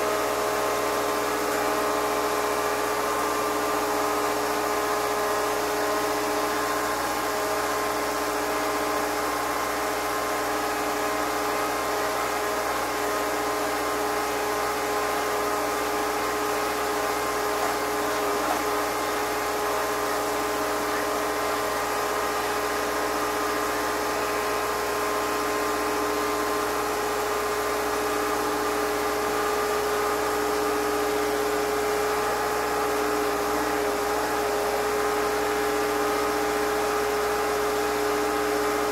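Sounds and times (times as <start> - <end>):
machine running steadily: 0.0 - 38.9.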